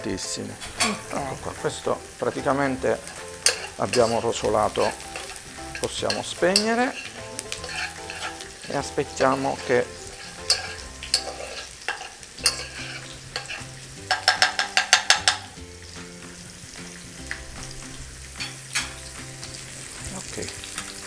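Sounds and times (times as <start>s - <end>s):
vegetables sizzling in butter: 0.0s - 21.0s
metal spoon scraping a pot: 2.2s - 15.5s.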